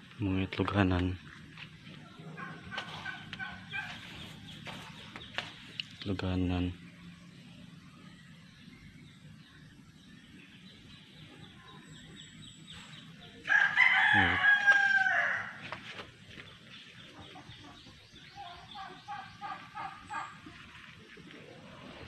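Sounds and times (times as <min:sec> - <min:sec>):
chicken clucking: 0:01.9 - 0:05.9, 0:16.8 - 0:22.0
rooster crowing: 0:13.5 - 0:15.7.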